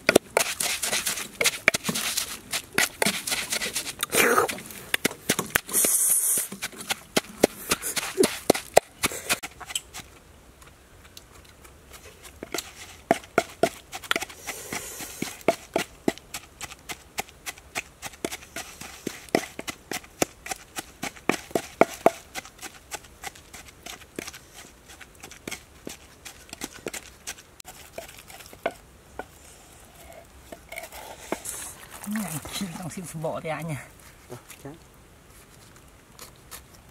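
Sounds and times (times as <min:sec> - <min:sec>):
pestle pounding in a mortar: 0:19.3 - 0:23.3.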